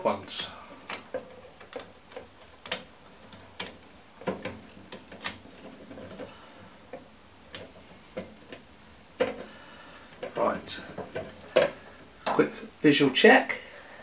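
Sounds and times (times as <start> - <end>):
plastic connectors clicking: 0.4 - 6.3.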